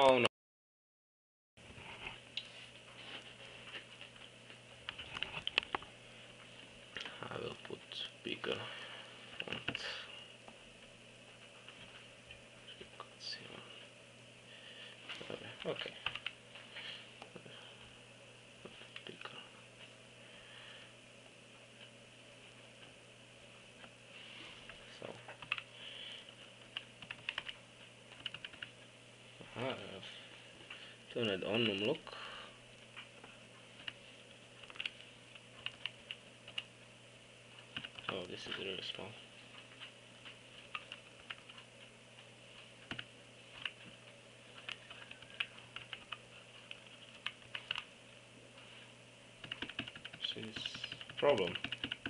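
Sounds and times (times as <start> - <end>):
keyboard keys clicking: 26.8 - 28.7, 35.6 - 36.7, 37.7 - 38.6, 44.6 - 47.9, 49.4 - 52.0.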